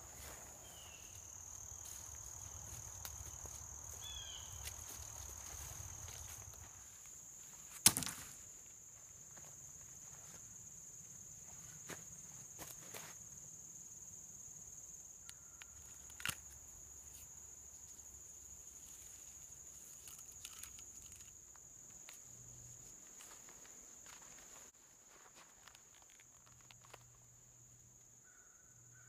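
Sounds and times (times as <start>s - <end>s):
faint footsteps: 0.0s - 8.4s, 21.9s - 27.2s
clicks of gear being handled: 19.9s - 21.4s.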